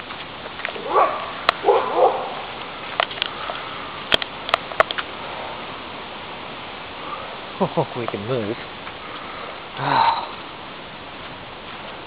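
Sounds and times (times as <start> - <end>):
outdoor hiss: 0.0 - 12.0
dog yelping bark: 0.8 - 2.5.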